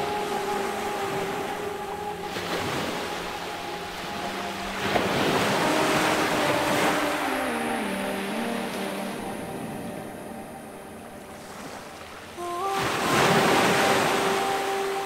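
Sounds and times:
surf breaking on beach: 11.3 - 15.0.

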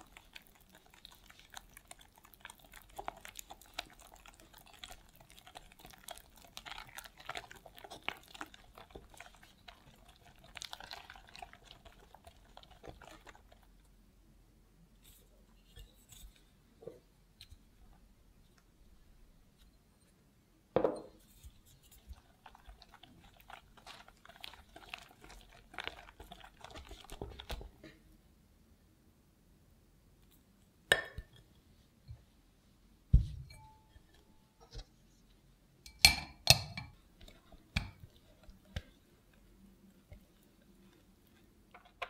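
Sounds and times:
whisk stirring batter in glass bowl: 0.0 - 13.9, 21.2 - 28.0, 36.4 - 42.0.

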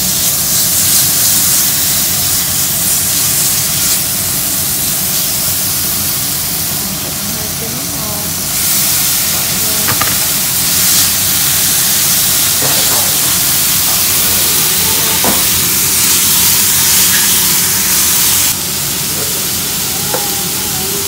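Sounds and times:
vegetables sizzling in a pan: 0.0 - 21.0
utensil knocking on pan: 9.8 - 10.3, 12.6 - 13.3, 15.0 - 15.5.

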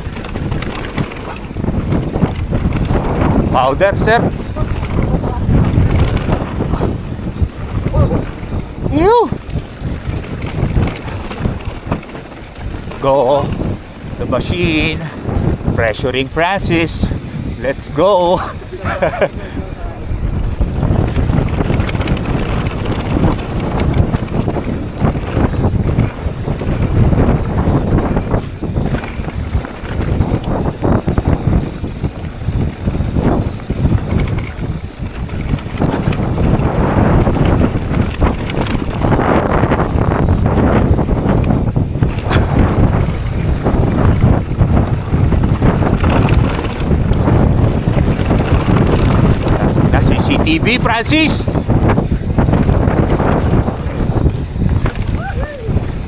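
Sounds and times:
tyre rumble: 0.0 - 15.8, 18.4 - 56.0
bike knocking and rattling: 0.0 - 56.0
wind buffeting microphone: 0.0 - 56.0.

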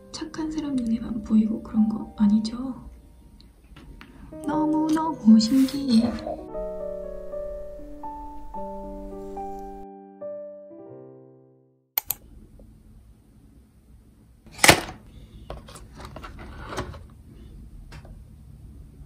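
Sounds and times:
piano music: 0.0 - 11.9
sharp clicks: 12.0 - 12.2.

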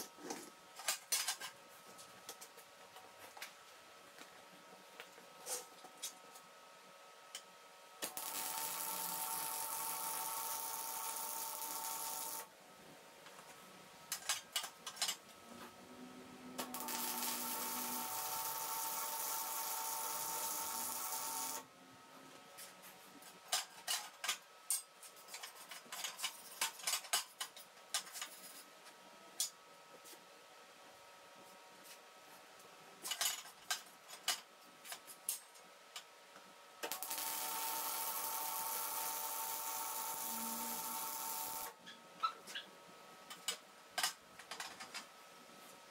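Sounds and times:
welder arc crackling and hissing: 8.0 - 12.5, 16.6 - 21.7, 36.8 - 41.8.

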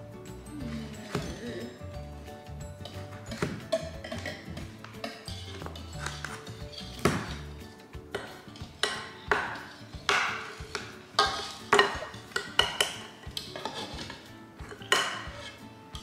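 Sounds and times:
whisk clinking in a bowl: 2.8 - 7.0, 8.1 - 15.6
knife scraping a metal saucepan: 2.8 - 16.0.

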